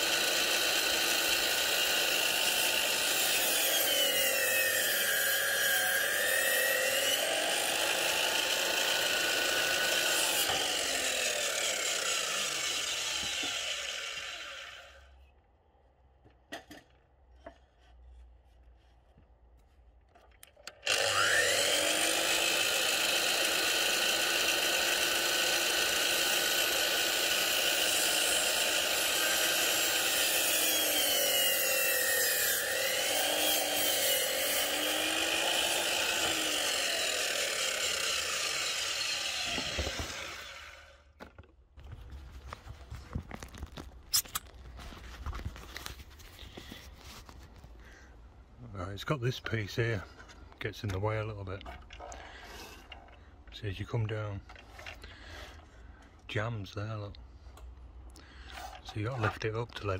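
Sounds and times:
mitre saw cutting wood: 0.0 - 15.1, 20.7 - 41.1.

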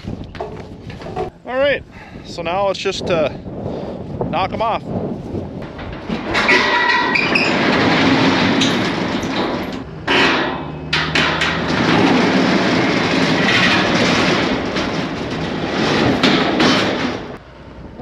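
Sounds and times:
excavator diesel engine under load: 7.4 - 18.0.

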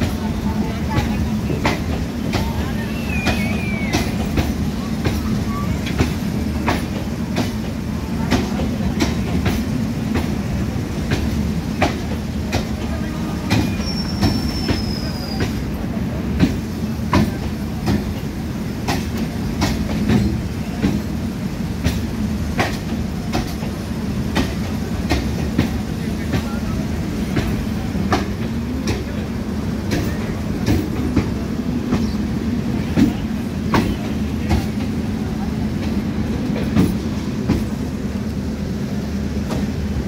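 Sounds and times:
train rumble: 0.0 - 40.0
wheel squeal: 13.6 - 15.5.

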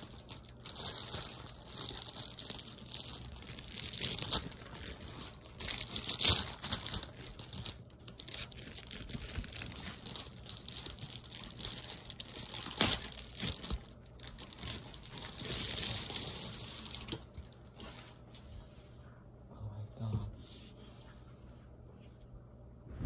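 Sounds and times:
packaging crinkling and crackling: 0.0 - 18.0.

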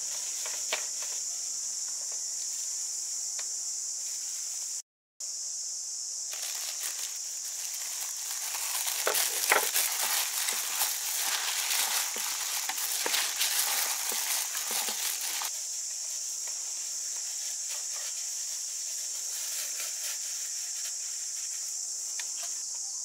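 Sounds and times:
high-pitched insect drone: 0.0 - 23.0
gloved hand mixing rice: 6.3 - 22.0.

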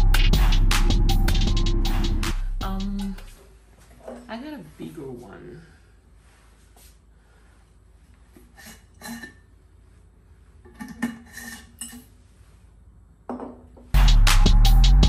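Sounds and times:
loud music with a beat: 0.0 - 3.3, 14.0 - 15.0.

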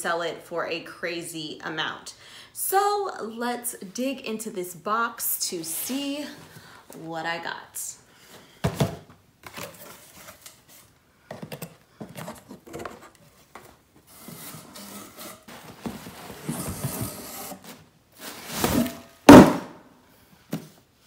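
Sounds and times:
cardboard box handling: 9.4 - 18.9
loud thump: 19.3 - 19.8.

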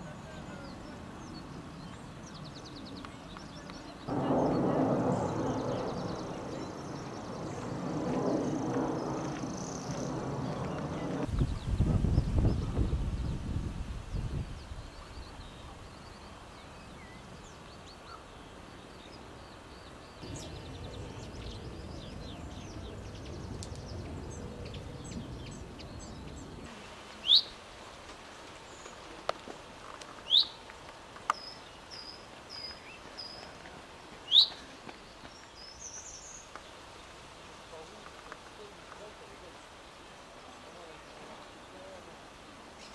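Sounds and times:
songbird calls: 0.0 - 7.8, 14.2 - 27.6, 30.2 - 37.1
low background noise: 13.1 - 42.9.

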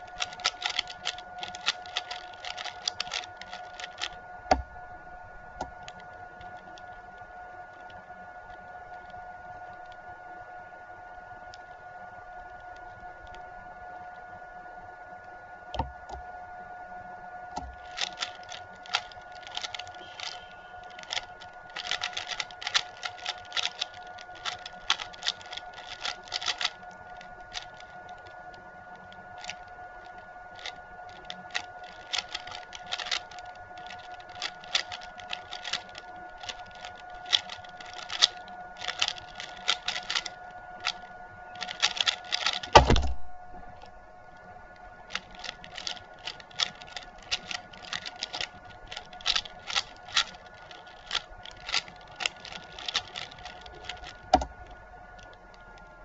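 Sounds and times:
puzzle cube turning clicks: 0.0 - 4.7, 17.6 - 43.9, 45.1 - 56.0
steady faint tone: 0.0 - 56.0
heavy thump: 42.8 - 43.4.

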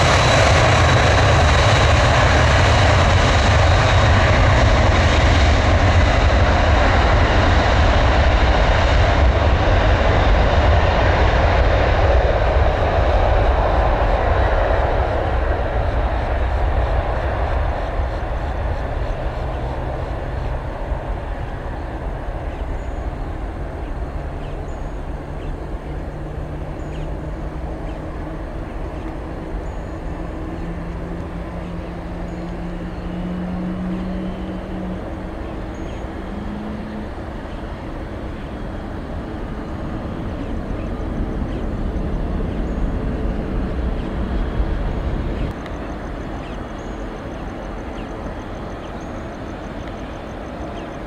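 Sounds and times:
jet engine rumble: 0.0 - 51.0
low hum rising in pitch: 12.0 - 46.0.

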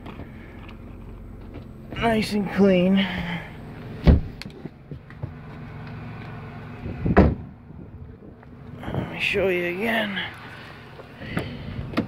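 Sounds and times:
steady low hum: 0.0 - 12.0
thump: 4.0 - 4.4, 7.0 - 7.5
car door slamming: 4.0 - 5.4, 6.8 - 7.5.

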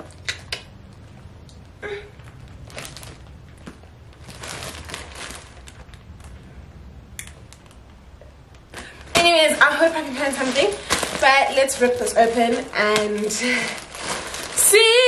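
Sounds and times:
low steady hum: 0.0 - 15.0
soft rustle: 2.1 - 6.6, 8.5 - 15.0.

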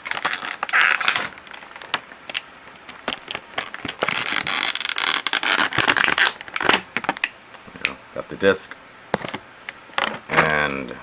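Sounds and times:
plastic rustling and scraping: 0.0 - 7.3.

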